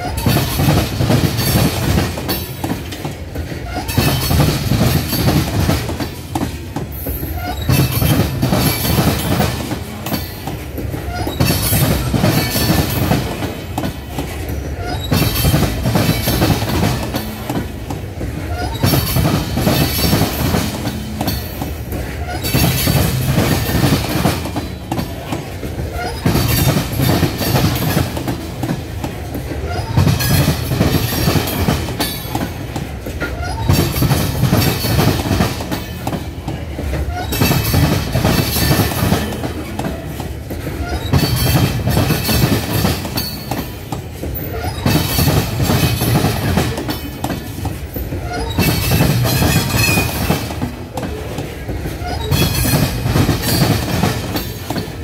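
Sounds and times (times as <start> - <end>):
train wheels clacking on track: 0.0 - 55.0.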